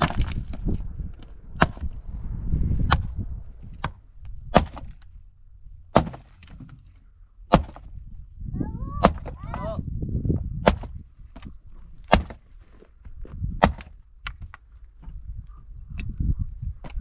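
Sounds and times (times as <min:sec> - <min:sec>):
axe chopping firewood: 0:00.0 - 0:00.8, 0:01.6 - 0:01.9, 0:02.9 - 0:03.1, 0:03.8 - 0:05.1, 0:05.9 - 0:08.0, 0:09.0 - 0:09.7, 0:10.5 - 0:12.6, 0:13.5 - 0:15.2, 0:16.8 - 0:17.0.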